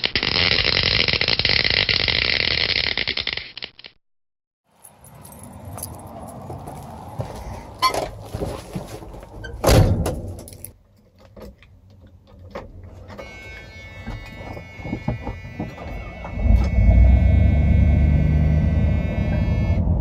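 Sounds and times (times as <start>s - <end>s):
keys jingling: 4.8s - 6.4s, 10.4s - 10.8s
heavy door thump: 9.6s - 10.5s
steady buzz: 13.4s - 20.0s
loud engine running unmuffled: 15.7s - 20.0s.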